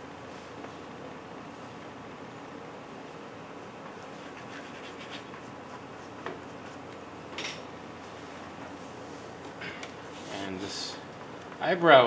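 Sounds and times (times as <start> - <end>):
steady room hum: 0.0 - 12.0
pastel scratching on board: 4.0 - 6.8.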